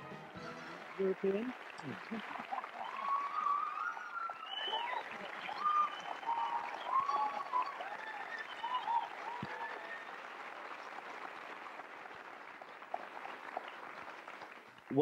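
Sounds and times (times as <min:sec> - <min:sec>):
audience applauding: 0:00.0 - 0:15.0
voices calling out: 0:00.9 - 0:10.4.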